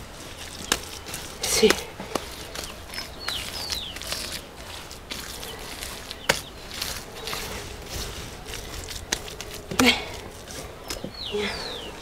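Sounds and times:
hands scraping mud: 0:00.0 - 0:11.8
bird chirps: 0:02.4 - 0:04.4, 0:10.8 - 0:12.0.

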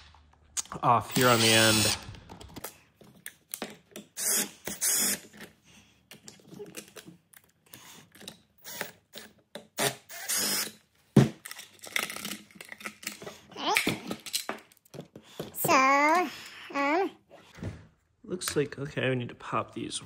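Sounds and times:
cordless driver running: 0:01.1 - 0:02.0.

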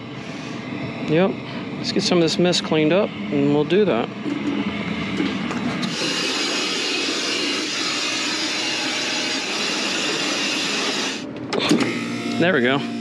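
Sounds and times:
handheld blower running: 0:05.2 - 0:13.0.

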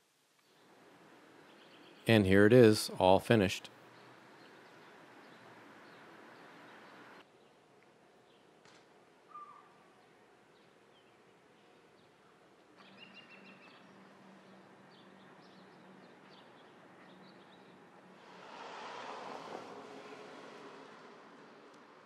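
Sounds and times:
bird chirps: 0:09.3 - 0:09.8, 0:12.8 - 0:14.0.

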